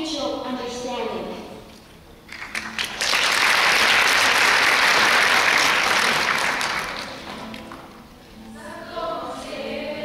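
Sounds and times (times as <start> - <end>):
audience applauding: 2.3 - 8.0.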